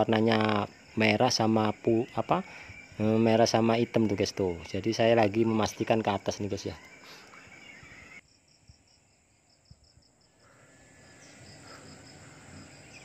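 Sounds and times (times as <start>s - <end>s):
insect chirping trill: 0.0s - 13.0s.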